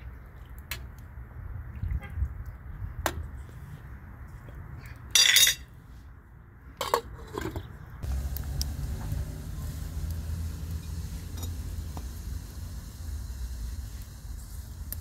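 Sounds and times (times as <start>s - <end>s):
metal ladle and lid clattering: 5.2s - 5.6s.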